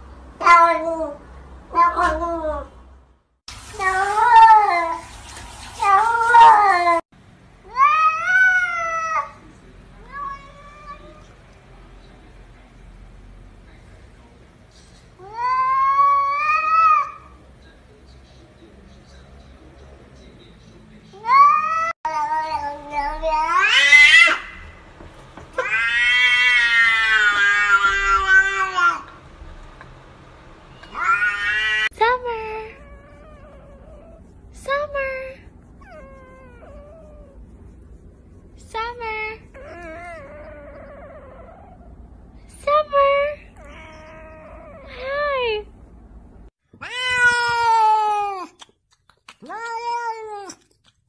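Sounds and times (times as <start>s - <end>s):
cat meowing: 0.4s - 2.7s, 21.2s - 24.7s, 25.6s - 29.2s, 30.8s - 31.9s, 43.6s - 44.9s, 46.8s - 48.6s, 49.4s - 50.6s.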